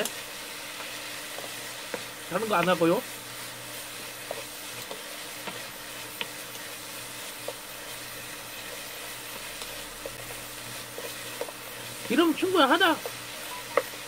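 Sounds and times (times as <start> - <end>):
shrimp and onion sizzling: 0.0 - 14.0
spatula tapping pan: 7.3 - 8.0.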